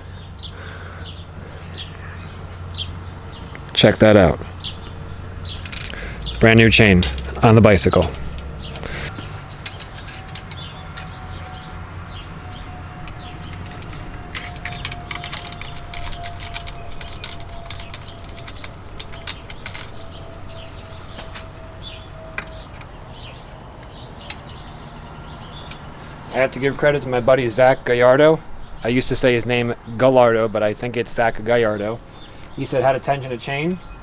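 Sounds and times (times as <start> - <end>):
bicycle chain clicking: 8.4 - 11.5, 12.8 - 20.6.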